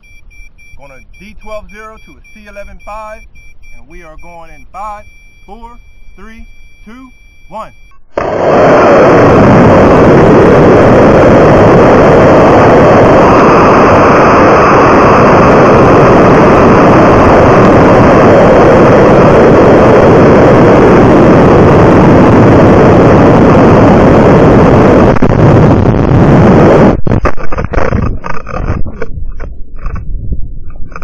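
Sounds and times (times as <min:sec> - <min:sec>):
air rushing over microphone: 0:08.2 - 0:31.0.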